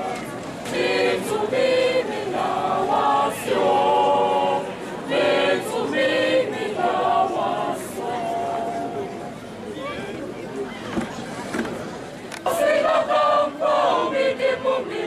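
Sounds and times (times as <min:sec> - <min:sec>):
children's choir singing in harmony: 0:00.6 - 0:09.3, 0:12.4 - 0:15.0.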